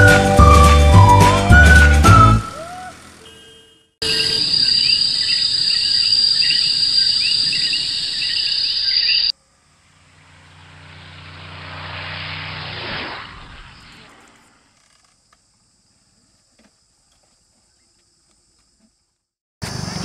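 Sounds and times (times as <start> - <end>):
bird chirps: 4.0 - 9.3
insects droning: 4.0 - 20.0
scooter engine approaching: 9.2 - 15.0.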